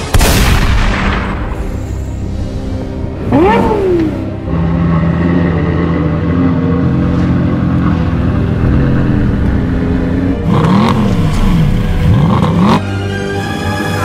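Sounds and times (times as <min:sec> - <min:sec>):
car engine revving: 0:03.2 - 0:13.1.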